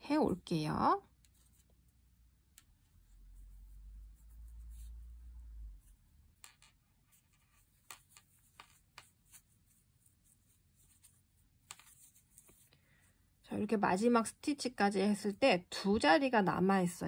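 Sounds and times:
crochet hook clicks and rustling: 0:11.6 - 0:12.6.

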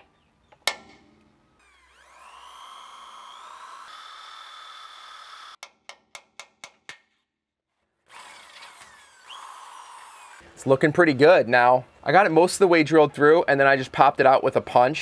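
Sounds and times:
power drill whining: 0:01.6 - 0:05.6, 0:08.1 - 0:10.4
short sharp drill bursts: 0:08.1 - 0:10.4.

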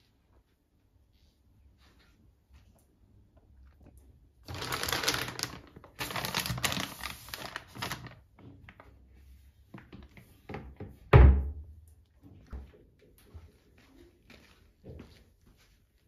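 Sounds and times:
plastic wrapping rustling: 0:04.4 - 0:08.9.

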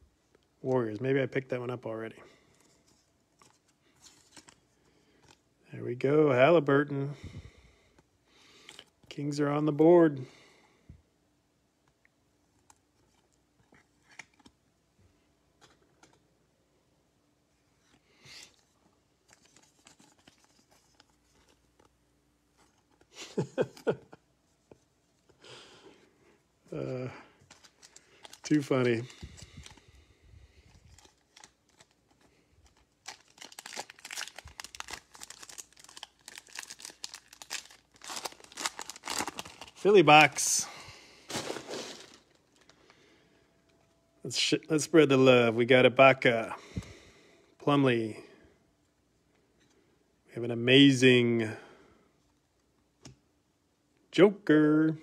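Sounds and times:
foil wrapper crinkling and tearing: 0:27.5 - 0:29.9, 0:30.7 - 0:40.6, 0:41.3 - 0:42.8.

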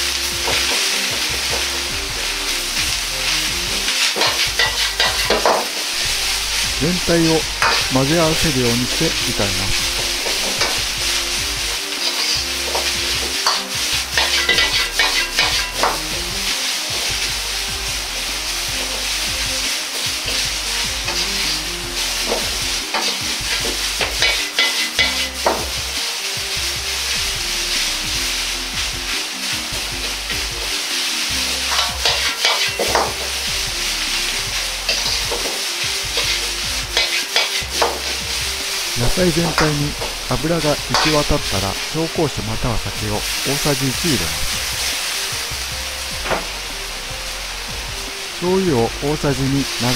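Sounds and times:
vegetables sizzling in oil: 0:00.0 - 0:49.9
metal ladle scraping a wok: 0:00.2 - 0:06.8, 0:07.4 - 0:07.9, 0:09.7 - 0:17.7, 0:18.6 - 0:26.0, 0:30.0 - 0:41.1.

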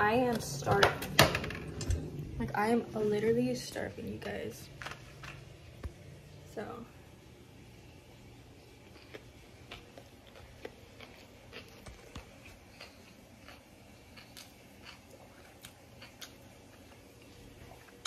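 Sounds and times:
person chewing: 0:08.5 - 0:18.0.

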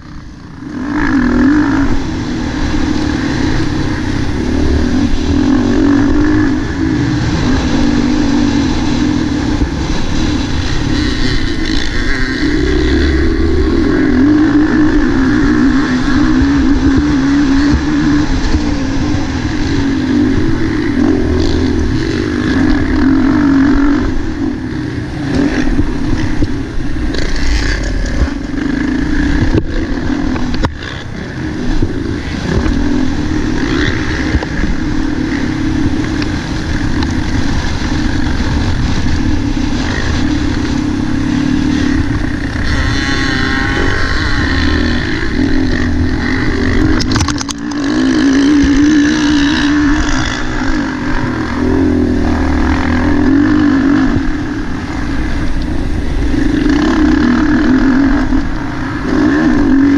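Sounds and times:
motocross bike engine revving: 0:00.0 - 0:59.9.

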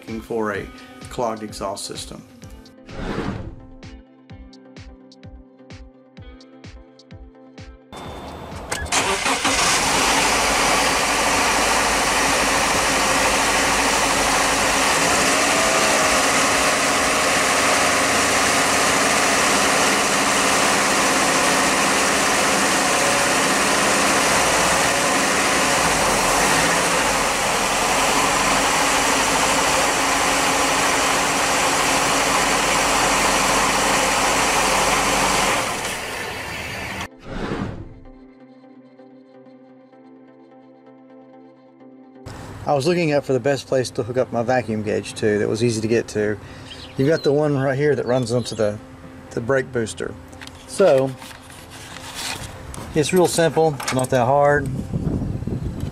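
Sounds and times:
car engine running: 0:08.0 - 0:37.1.

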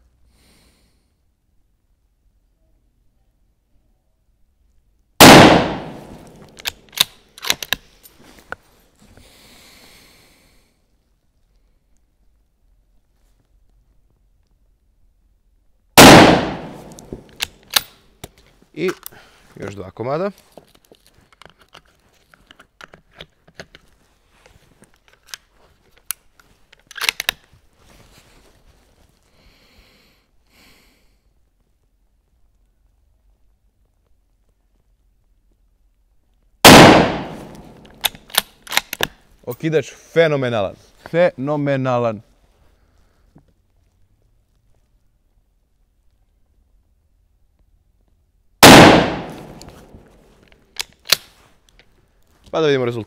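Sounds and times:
rifle shot: 0:05.2 - 0:06.4, 0:16.0 - 0:17.9, 0:36.6 - 0:39.0, 0:48.6 - 0:50.0
rifle bolt metallic clicks: 0:05.2 - 0:07.9, 0:16.0 - 0:19.1, 0:26.0 - 0:27.4, 0:36.6 - 0:39.2, 0:48.6 - 0:49.9, 0:50.5 - 0:51.9.

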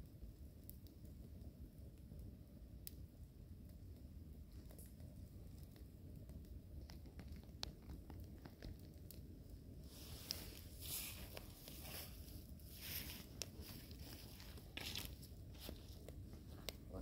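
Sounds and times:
wood fire crackling and popping: 0:00.0 - 0:17.0
rushes of hiss: 0:09.9 - 0:13.4.

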